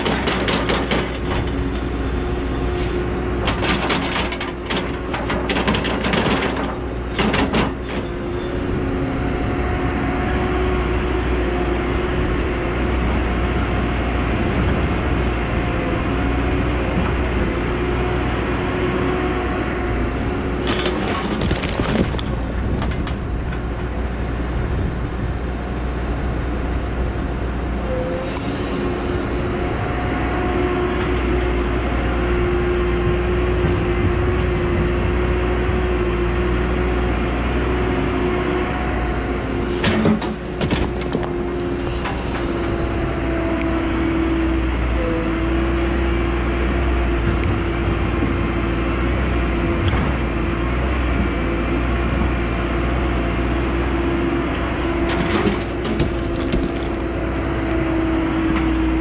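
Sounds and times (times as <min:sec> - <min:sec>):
excavator diesel engine running: 0:00.0 - 0:59.0
hydraulic whine: 0:27.8 - 0:31.4.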